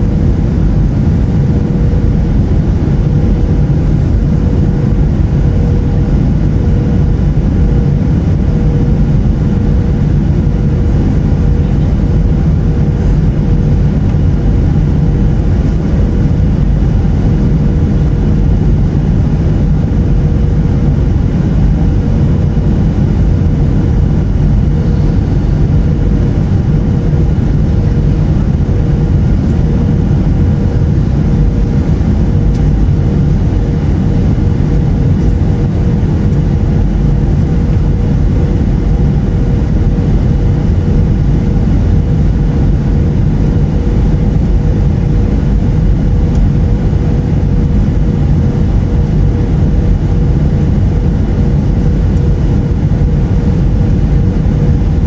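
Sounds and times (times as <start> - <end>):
jet engines rumbling in cabin: 0.0 - 55.0
steady hum: 0.0 - 55.0.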